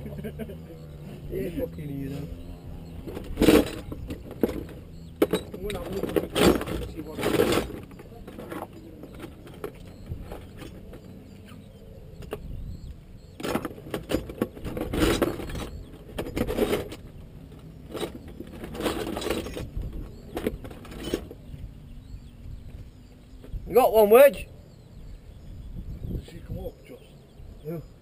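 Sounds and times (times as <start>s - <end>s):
clinks and clatters of parts: 3.0s - 11.1s, 13.4s - 21.4s.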